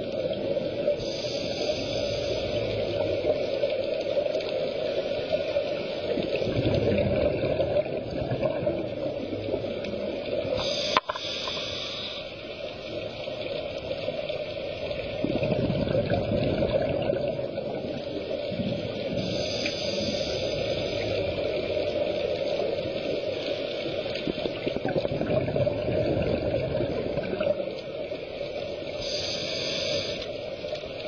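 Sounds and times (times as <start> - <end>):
muffled underwater noise: 0.0 - 31.0
diver exhaling bubbles: 15.2 - 17.5, 24.3 - 27.6.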